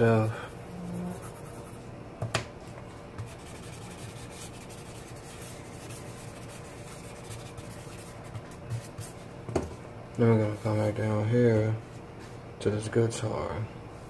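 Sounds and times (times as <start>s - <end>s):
pencil shading on paper: 0.7s - 1.8s, 3.2s - 9.2s.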